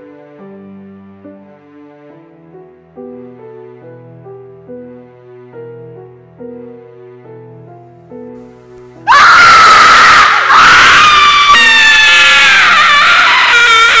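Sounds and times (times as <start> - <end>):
slow music with decaying notes: 0.0 - 14.0
loud high-pitched scream: 9.0 - 14.0.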